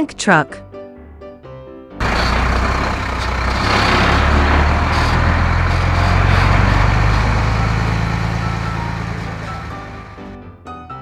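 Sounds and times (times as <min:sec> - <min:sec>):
heavy truck engine running: 0:02.0 - 0:10.4.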